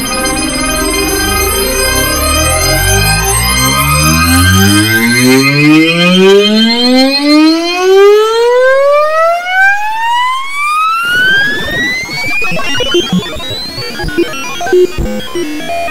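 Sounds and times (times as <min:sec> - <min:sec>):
crackling clutter of notes: 0:00.0 - 0:07.1, 0:11.1 - 0:15.9
rapid synth notes climbing in pitch: 0:00.0 - 0:15.9.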